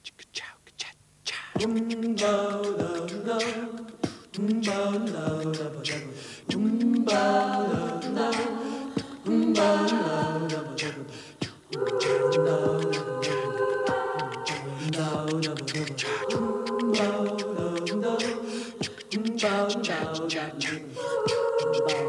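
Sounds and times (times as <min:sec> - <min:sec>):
group singing unaccompanied: 0:01.6 - 0:22.0.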